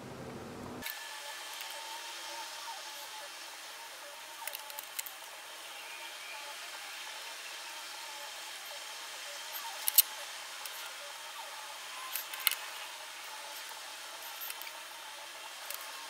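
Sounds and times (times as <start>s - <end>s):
steady background hiss: 0.0s - 16.0s
small sharp clicks: 9.6s - 10.8s.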